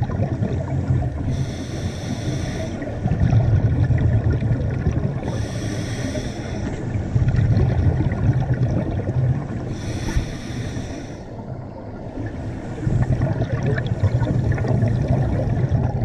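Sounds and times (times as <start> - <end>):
low bubbling rumble: 0.0 - 1.6, 2.6 - 10.4, 11.3 - 16.0
scuba regulator hiss: 1.3 - 2.8, 5.2 - 6.8, 9.8 - 11.3.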